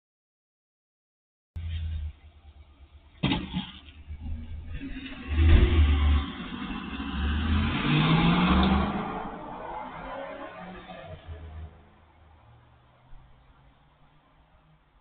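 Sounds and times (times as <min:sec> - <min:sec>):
truck engine accelerating: 0:01.6 - 0:13.4.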